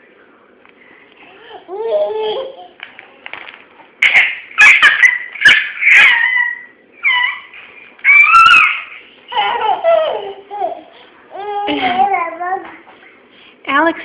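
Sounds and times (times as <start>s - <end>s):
toddler babbling: 1.3s - 2.8s, 8.2s - 12.8s
toddler squealing and laughing: 4.0s - 10.9s.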